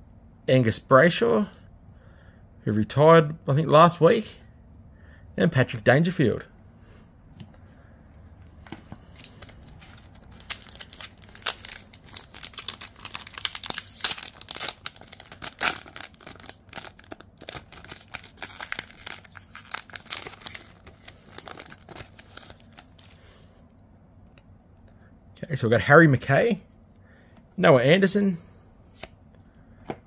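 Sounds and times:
foil pack crackling: 9.0s - 23.1s.

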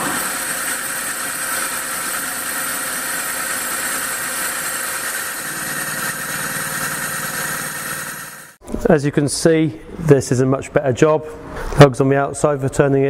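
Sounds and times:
metal lathe cutting whine: 0.0s - 8.6s.

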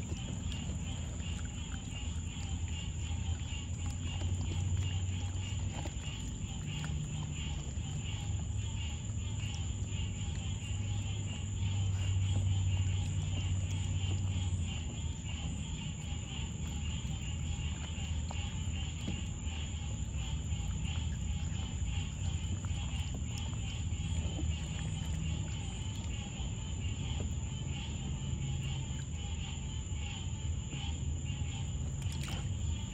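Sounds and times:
small water splashes: 0.0s - 27.8s, 31.6s - 32.9s
crickets chirring: 0.0s - 32.9s
low steady hum: 0.0s - 32.9s.

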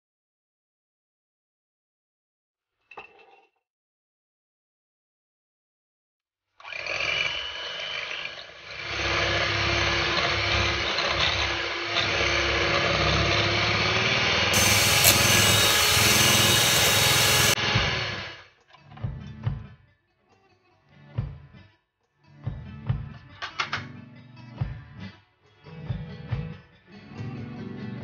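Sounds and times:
electric hand mixer whipping cream: 6.6s - 18.2s.

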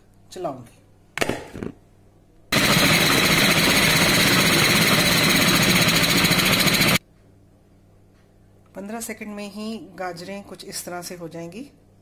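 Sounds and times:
food processor mincing carrots: 2.6s - 7.0s.

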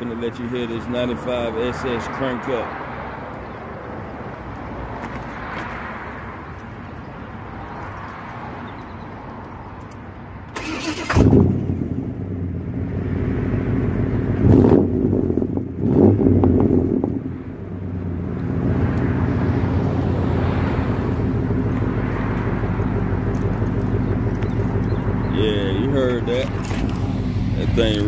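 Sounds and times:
car engine starting and idling: 10.5s - 28.0s
engine revving: 10.6s - 17.3s.

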